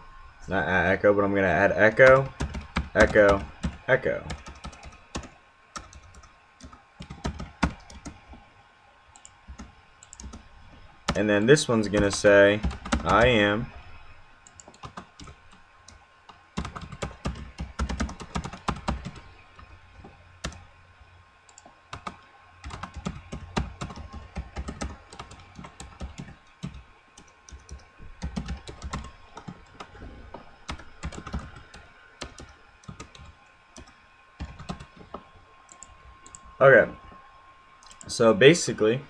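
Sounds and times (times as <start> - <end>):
typing on computer keyboard: 2.0 - 8.2, 9.2 - 10.4, 11.9 - 13.4, 14.5 - 15.4, 16.6 - 19.3, 20.4 - 20.6, 21.5 - 29.9, 30.7 - 35.1.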